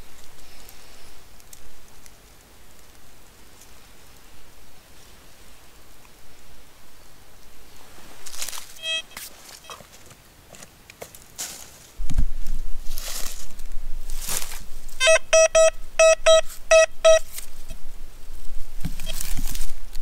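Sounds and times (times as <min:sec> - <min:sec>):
metal detector beeps: 0:08.8 - 0:09.8, 0:15.0 - 0:17.4, 0:19.0 - 0:19.2.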